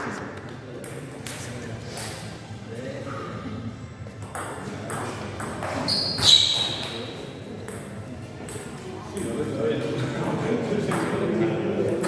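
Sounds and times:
high-pitched squeak: 5.8 - 7.0.

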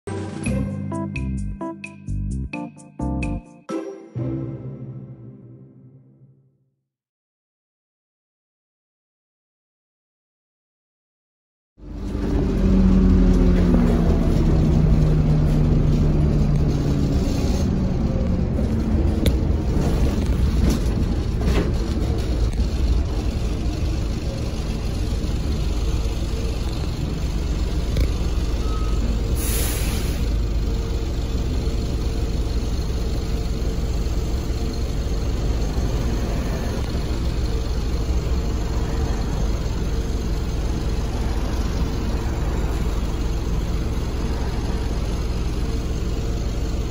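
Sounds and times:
bus diesel engine and road rumble: 11.8 - 46.9
air hiss: 29.4 - 30.3.

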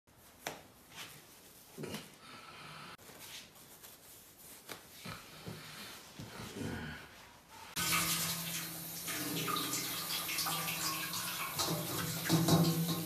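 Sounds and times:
slippers scuffing on tiled floor: 0.1 - 2.1, 3.0 - 6.7
socks rustling on feet: 0.1 - 2.2, 3.0 - 6.6.

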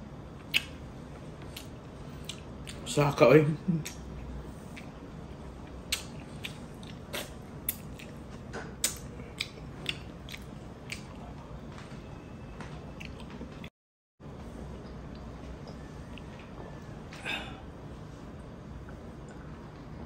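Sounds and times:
mouth chewing and sucking: 0.4 - 0.8, 3.8 - 5.0, 5.6 - 8.2, 8.8 - 11.3.

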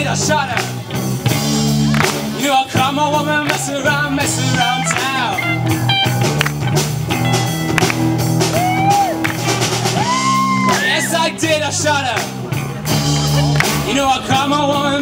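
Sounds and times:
rock band playing: 0.0 - 15.0
person singing: 2.4 - 5.9.

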